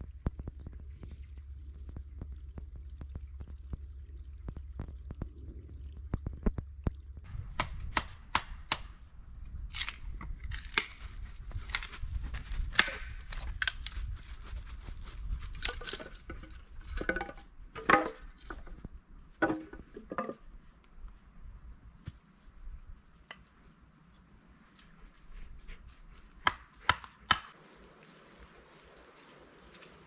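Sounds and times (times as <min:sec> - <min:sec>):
low rumble: 0:00.0 - 0:17.7
hatchet chopping wood: 0:07.5 - 0:08.9, 0:12.7 - 0:13.1, 0:26.4 - 0:27.6.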